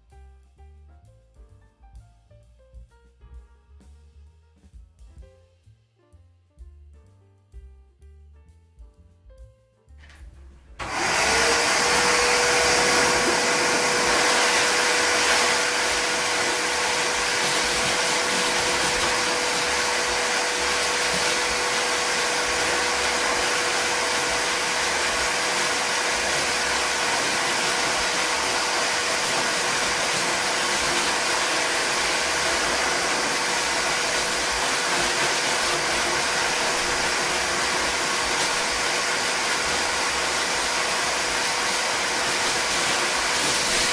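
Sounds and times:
pet grooming dryer blowing air: 10.8 - 43.9.

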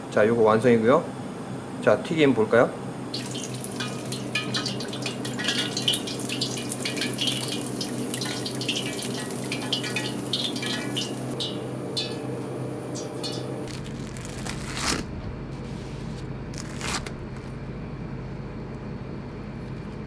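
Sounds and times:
fish deep-frying in oil: 3.1 - 14.0.

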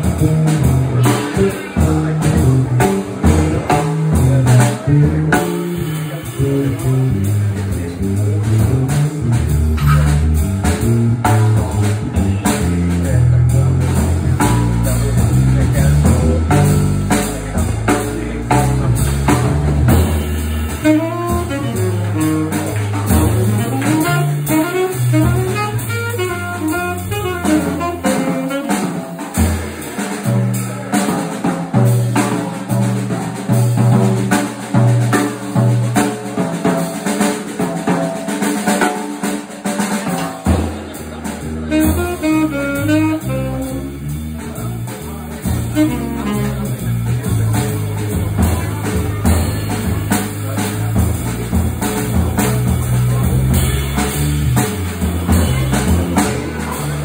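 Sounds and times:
electric bass guitar: 0.0 - 38.4, 39.3 - 57.0
drum kit: 0.0 - 57.0
tenor saxophone: 4.2 - 11.5, 18.4 - 29.5, 41.0 - 57.0.

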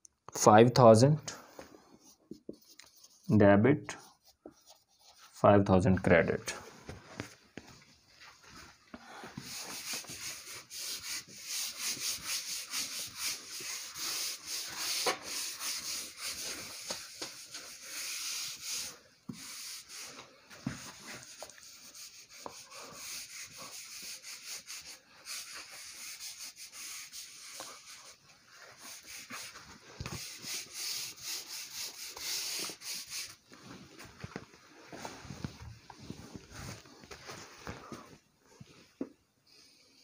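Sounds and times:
eraser scrubbing a whiteboard: 2.0 - 3.3, 3.9 - 5.4, 9.2 - 33.4.

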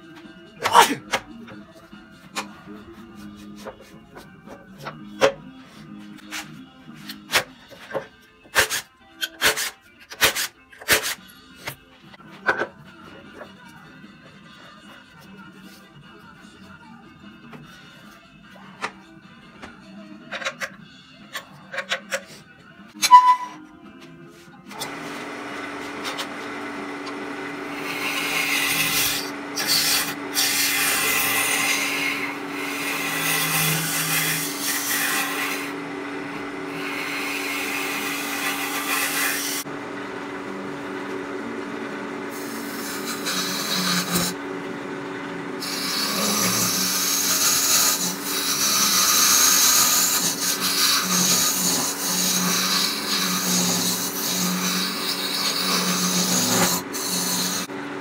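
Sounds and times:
turning tool scraping wood: 24.8 - 39.7, 42.3 - 44.4, 45.6 - 57.7
wood lathe motor hum: 24.8 - 58.0.

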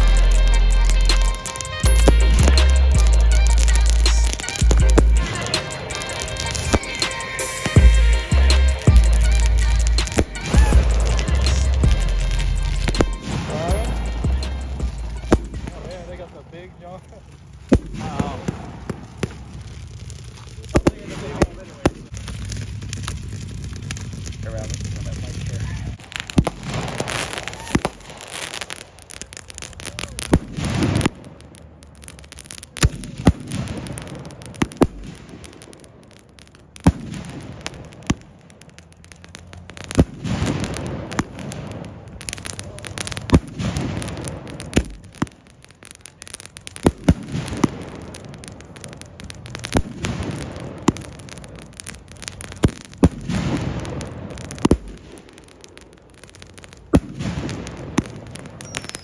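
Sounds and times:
low rumbling: 0.0 - 7.0, 7.6 - 28.2
firework bangs overhead: 0.0 - 59.0
firework shells launching: 0.0 - 59.0.

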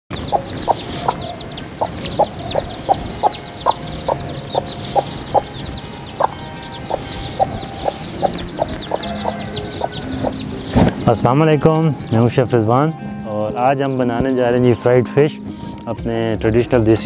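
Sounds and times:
hen clucking: 0.1 - 11.0
chicks peeping: 0.1 - 11.3.

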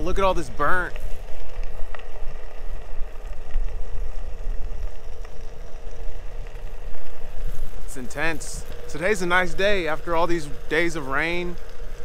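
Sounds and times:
faint steady hum: 0.0 - 12.0
tyre noise on trail: 0.0 - 12.0
wind rumble on microphone: 0.0 - 12.0
light ticks: 4.7 - 12.0.

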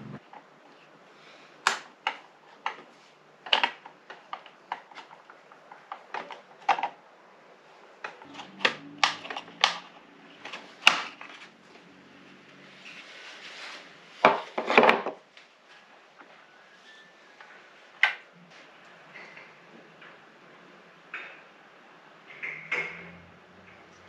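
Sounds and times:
plastic parts knocking: 1.7 - 7.0.

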